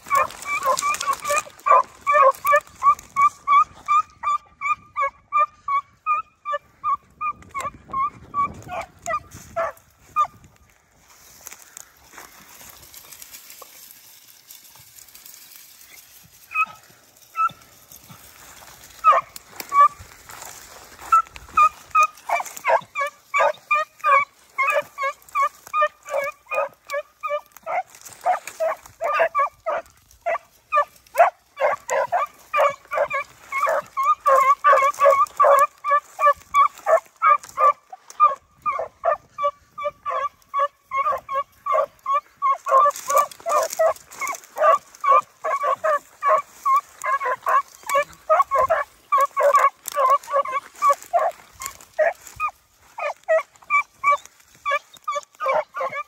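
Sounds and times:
dog baying in sharp yelps: 0:00.0 - 0:10.4, 0:15.2 - 0:56.0.

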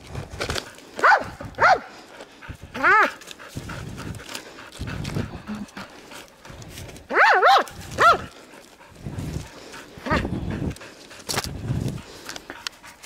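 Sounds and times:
small dog yelping: 0:07.1 - 0:08.3.

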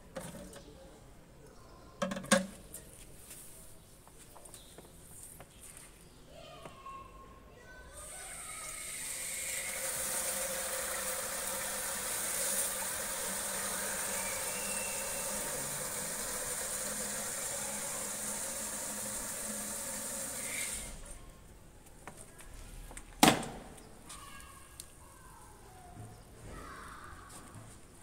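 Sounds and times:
water running from hose into tank: 0:08.0 - 0:21.2.

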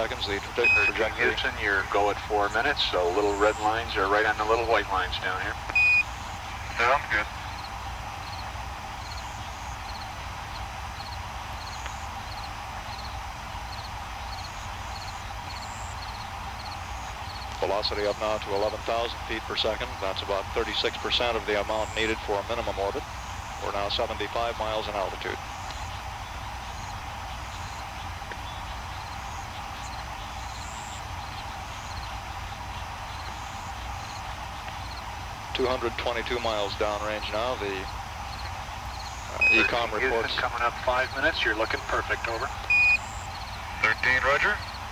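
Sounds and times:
low hum: 0:00.0 - 0:44.9
radio hiss: 0:00.0 - 0:44.9
faint high chirp: 0:00.5 - 0:01.5, 0:38.3 - 0:39.9, 0:42.6 - 0:44.8.

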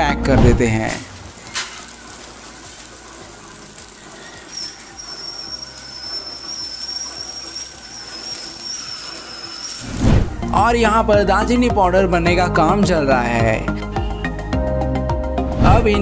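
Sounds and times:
high-pitched whine: 0:00.9 - 0:10.6.

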